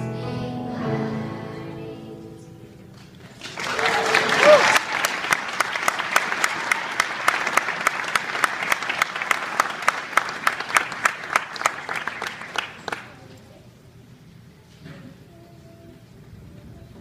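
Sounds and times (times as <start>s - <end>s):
close hands clapping: 3.0s - 13.3s
audience applauding: 3.3s - 13.2s.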